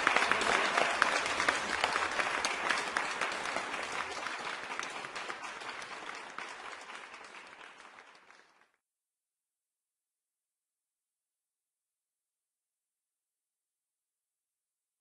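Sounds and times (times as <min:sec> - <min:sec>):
crowd applause: 0:00.0 - 0:08.8.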